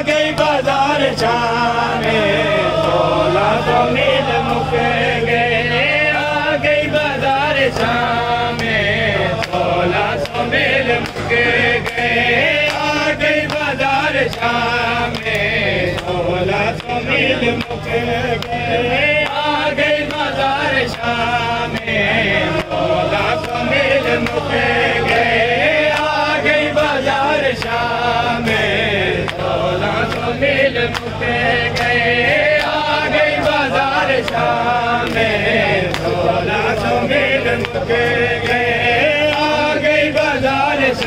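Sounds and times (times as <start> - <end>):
men chanting together: 0.0 - 41.0.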